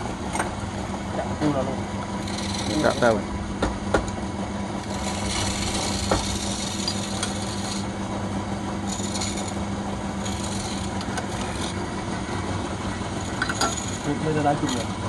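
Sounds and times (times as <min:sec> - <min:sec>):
wood lathe motor hum: 0:01.2 - 0:15.0
turning tool scraping wood: 0:02.1 - 0:03.2, 0:04.7 - 0:08.0, 0:08.7 - 0:12.0, 0:12.8 - 0:15.0.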